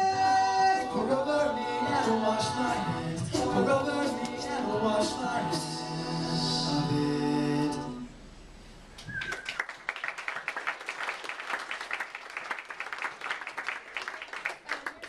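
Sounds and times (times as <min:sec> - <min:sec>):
a cappella group singing chord: 0:00.0 - 0:08.2
audience applause: 0:09.0 - 0:15.0.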